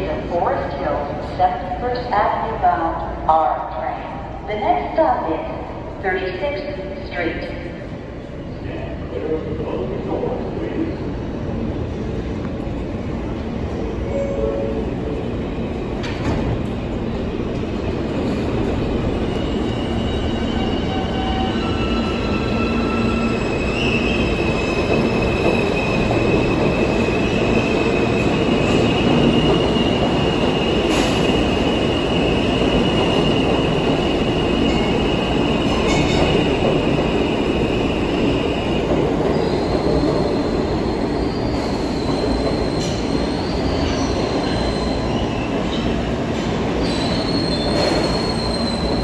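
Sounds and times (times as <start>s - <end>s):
subway train wheels rumbling: 0.0s - 49.0s
high wheel squeal: 46.8s - 49.0s.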